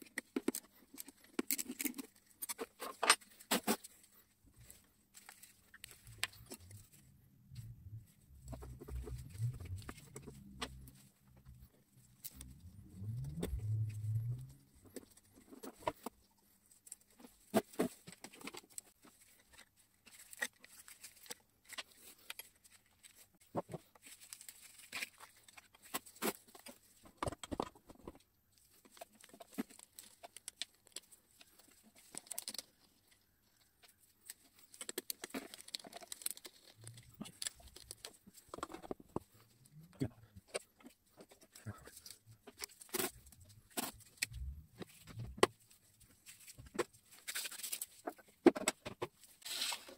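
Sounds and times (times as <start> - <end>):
small metal parts and tools clinking: 0.0 - 4.0.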